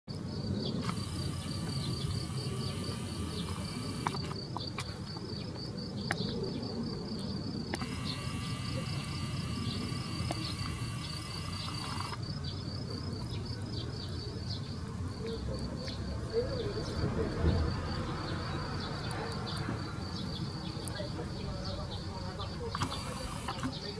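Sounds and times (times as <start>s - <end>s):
insects chirping: 0.1s - 23.9s
sharp clicks: 0.7s - 4.9s, 7.7s - 12.3s, 22.6s - 23.9s.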